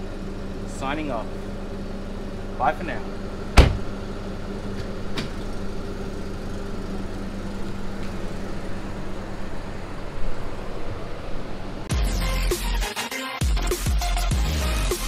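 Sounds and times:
car engine idling: 0.0s - 12.7s
car door shutting thud: 3.5s - 4.0s, 4.7s - 5.5s.

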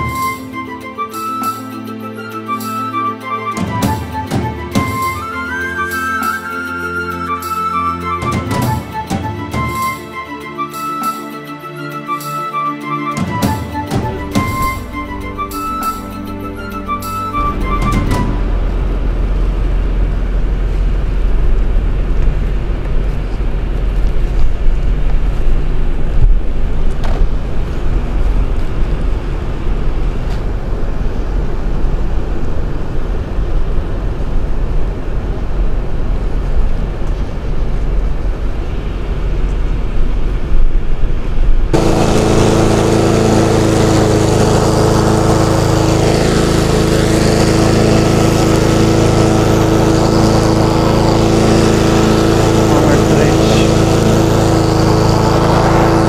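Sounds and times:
lawn mower running: 0.0s - 1.4s, 2.0s - 34.1s, 41.7s - 56.0s
car engine rumbling: 14.2s - 56.0s.

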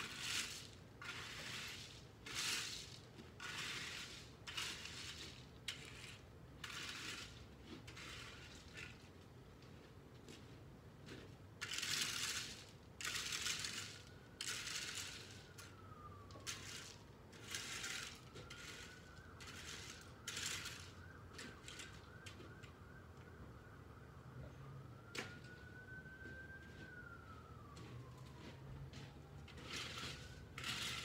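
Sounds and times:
rake scraping through gravel: 0.0s - 9.2s, 11.1s - 22.1s, 29.5s - 31.0s.

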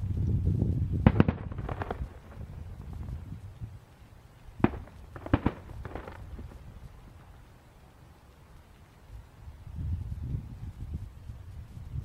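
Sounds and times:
low rumble: 0.0s - 3.9s
fireworks crackle: 0.0s - 12.0s
distant fireworks bursting: 1.0s - 8.8s.

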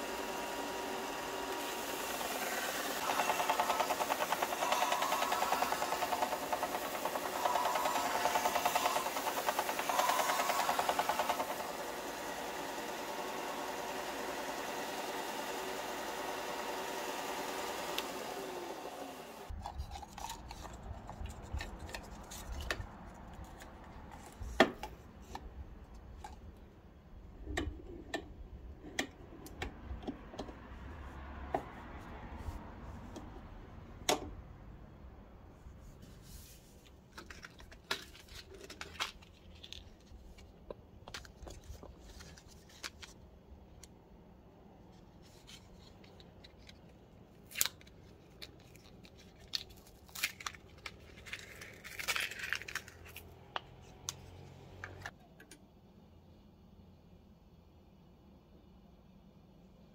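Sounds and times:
belt sander running: 0.0s - 19.5s.

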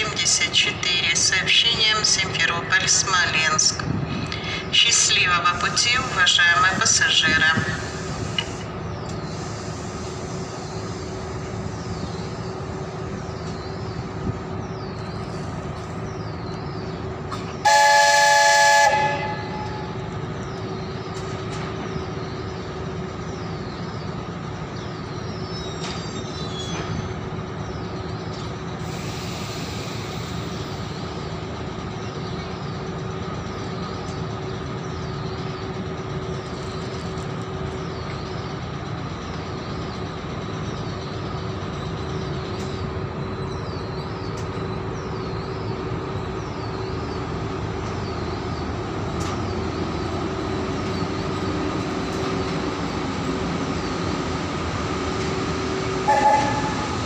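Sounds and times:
locomotive electrical hum: 0.0s - 25.5s, 26.8s - 57.0s
locomotive horn blast: 17.6s - 20.0s, 56.0s - 57.0s.

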